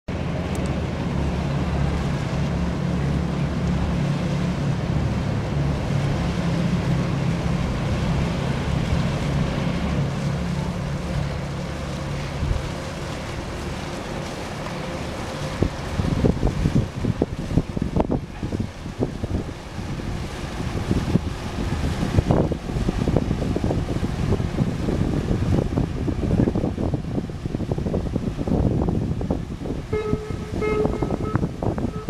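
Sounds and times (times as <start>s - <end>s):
wind: 0.0s - 32.0s
boat engine humming: 0.1s - 32.0s
water noise: 0.1s - 32.0s.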